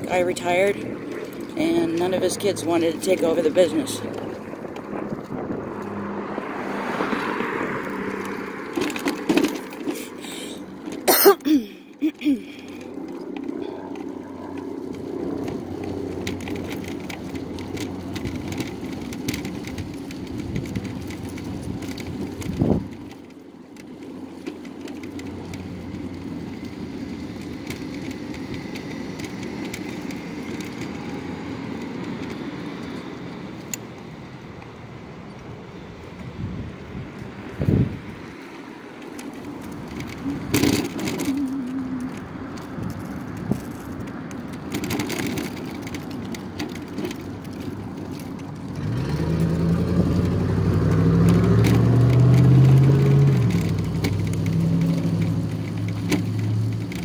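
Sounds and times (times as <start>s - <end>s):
mobility scooter rumbling: 0.0s - 57.0s.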